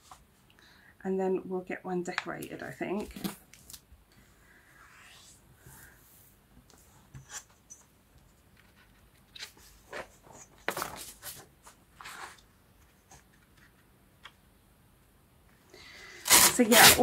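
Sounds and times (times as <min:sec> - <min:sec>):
paper rustling: 0:08.6 - 0:13.9.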